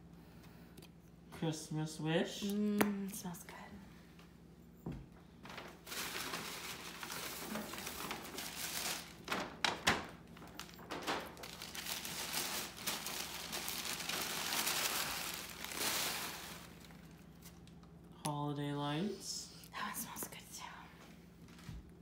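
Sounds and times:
paper rustling and crinkling: 5.4 - 17.7.

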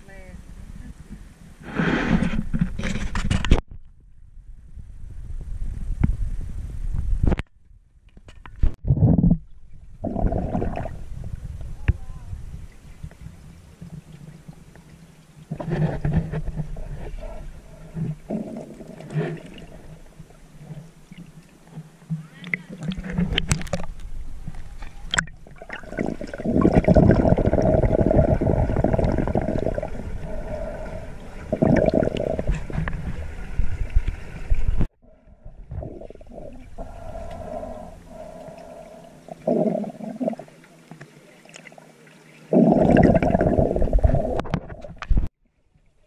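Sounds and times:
water rushing over microphone: 9.7 - 45.3
steady hum: 23.1 - 40.6.

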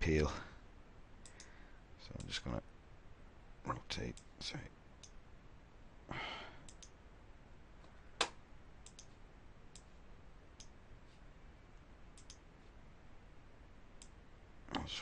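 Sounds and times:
computer mouse clicks: 1.2 - 1.6, 6.6 - 7.0, 8.2 - 9.9, 10.6 - 10.8, 12.1 - 12.4
soft breath: 1.3 - 1.9, 6.1 - 6.7.

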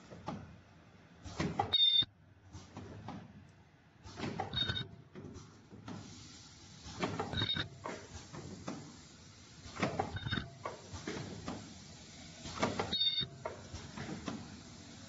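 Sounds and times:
short air hisses: 5.9 - 7.1.

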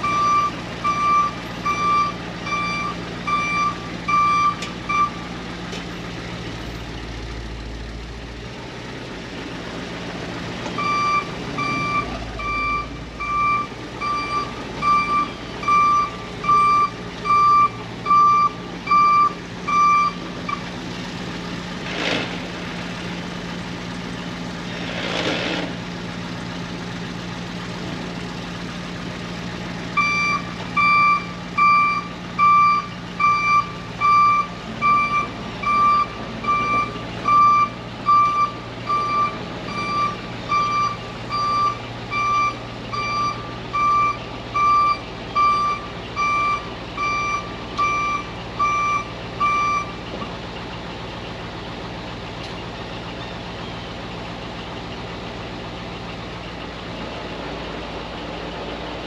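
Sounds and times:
truck backup alarm beeping: 0.0 - 5.3, 10.8 - 20.7, 29.9 - 50.3
diesel engine running: 0.0 - 59.0.

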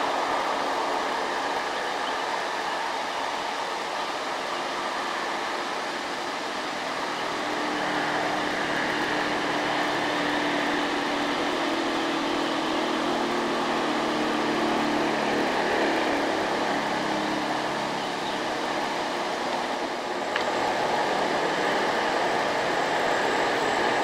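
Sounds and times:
diesel truck engines droning: 0.0 - 24.0
road traffic: 0.0 - 24.0
passing motorcycles: 6.5 - 24.0.

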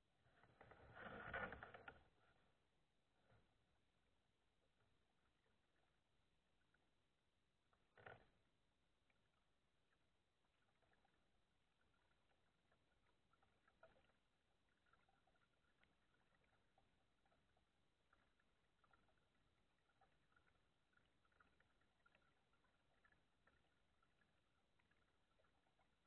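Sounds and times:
faint small ticks: 7.6 - 26.0.

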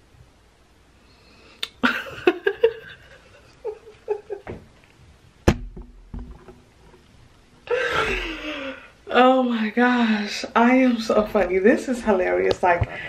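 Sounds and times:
woman laughing: 1.8 - 4.6, 7.7 - 8.9
sharp knock: 5.4 - 6.4.

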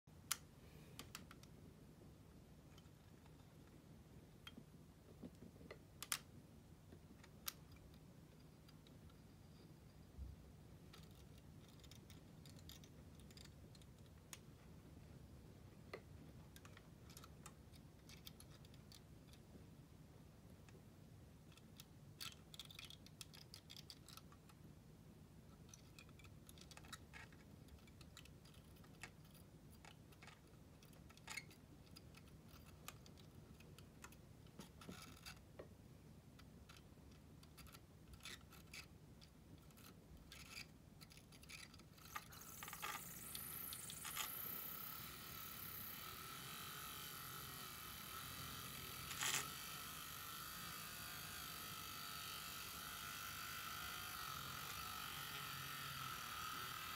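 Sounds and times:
clicks and scrapes on plastic track: 10.9 - 14.2, 25.5 - 35.7, 36.4 - 56.9
high-pitched motor whir: 42.4 - 56.9.

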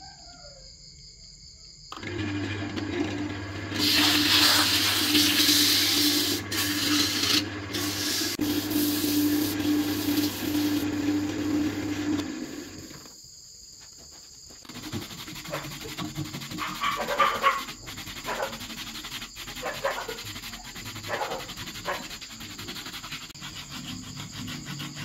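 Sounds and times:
lathe motor humming: 2.0 - 13.0
sandpaper rasping on wood: 3.8 - 10.9, 14.2 - 25.0.

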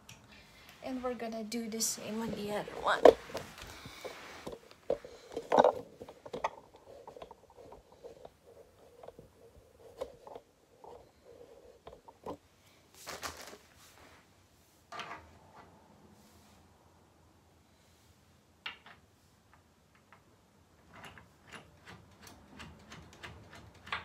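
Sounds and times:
metal clicks knocks and scrapes: 3.0 - 12.4, 20.0 - 24.0.

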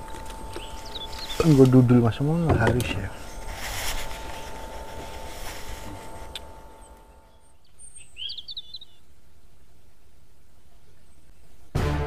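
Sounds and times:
bird chirping: 0.0 - 3.5, 6.2 - 11.7.

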